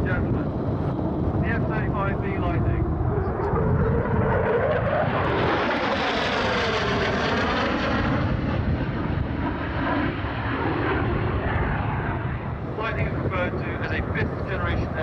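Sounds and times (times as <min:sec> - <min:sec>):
jet engine passing: 0:00.0 - 0:15.0.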